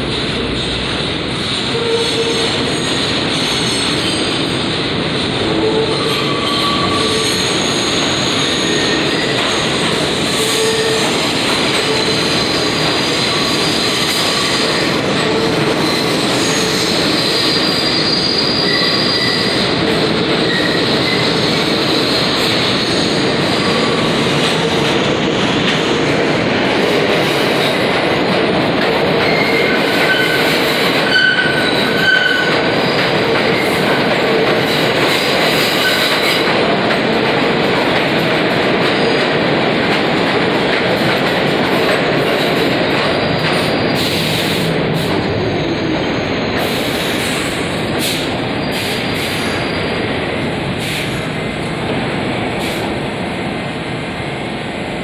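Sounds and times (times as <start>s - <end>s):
train wheels rumbling on rails: 0.0s - 55.0s
high-pitched wheel squeals: 5.5s - 9.4s, 15.8s - 19.6s.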